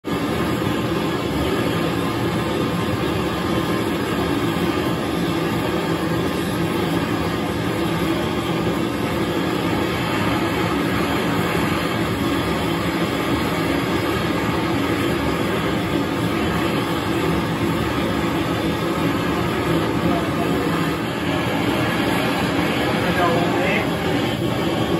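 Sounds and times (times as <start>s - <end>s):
torches burning with loud rushing: 0.0s - 24.9s.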